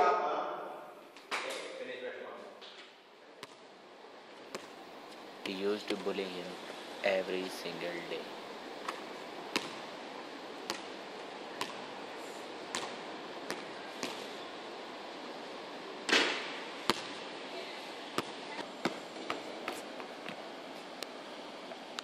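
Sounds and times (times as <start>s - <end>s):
steady background hiss: 0.0s - 22.0s
basketball bouncing on hard court: 8.9s - 9.8s, 10.6s - 10.9s, 11.6s - 11.9s, 12.7s - 14.3s, 16.1s - 17.2s, 18.2s - 19.4s.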